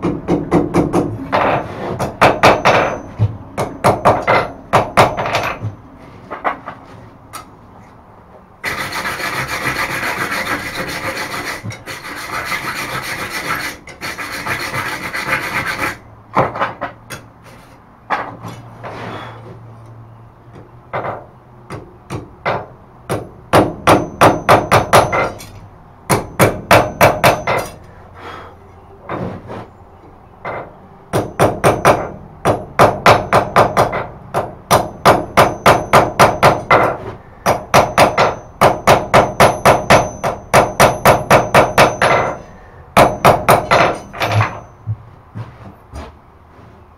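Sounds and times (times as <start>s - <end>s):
rough scraping: 1.4s - 2.1s, 8.6s - 16.1s, 17.4s - 19.8s, 29.1s - 29.8s, 45.3s - 46.9s
hammer ringing on hot iron: 2.2s - 5.1s, 23.1s - 25.5s, 26.1s - 27.8s, 34.7s - 44.9s.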